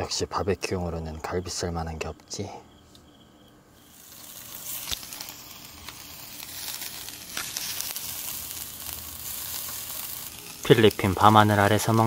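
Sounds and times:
fat crackles: 3.8s - 12.0s
meat sizzling on grill: 3.8s - 12.0s.

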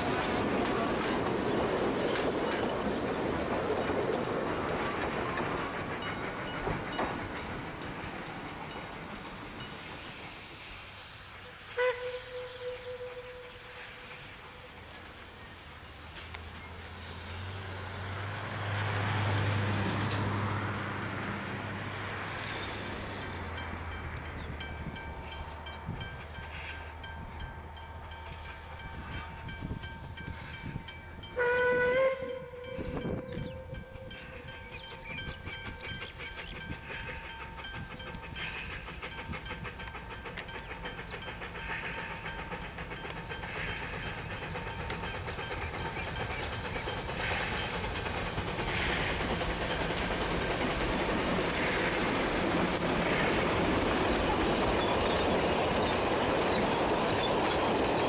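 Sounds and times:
steam engine exhaust beats: 0.0s - 58.0s
steam locomotive whistle: 10.8s - 14.9s, 30.4s - 35.2s.

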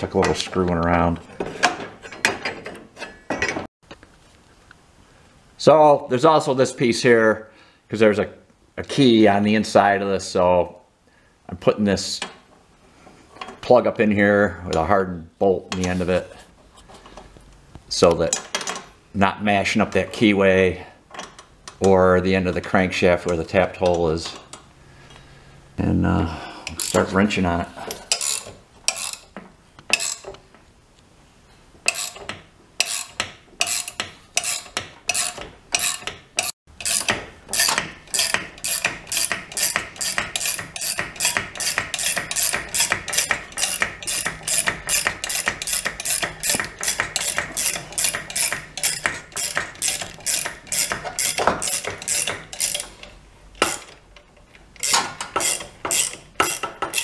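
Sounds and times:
ratchet wrench clicking: 26.7s - 27.1s, 28.0s - 29.3s, 29.9s - 30.3s, 31.9s - 53.9s, 54.8s - 57.0s.

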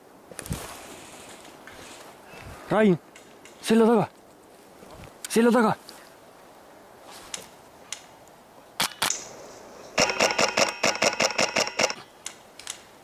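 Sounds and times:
airsoft rifle firing: 10.0s - 12.0s
high ringing tone: 10.0s - 12.0s.

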